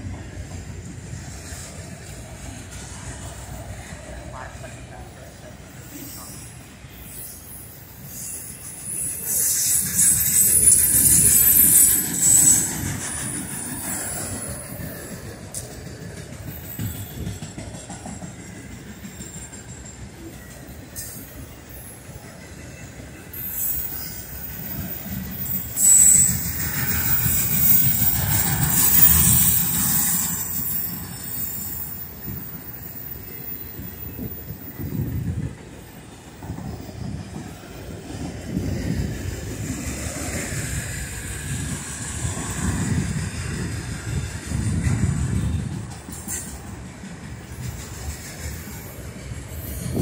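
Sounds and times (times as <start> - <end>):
freight cars rumbling on rails: 0.0 - 50.0
high-pitched wheel squeal: 5.9 - 15.1, 23.3 - 35.1.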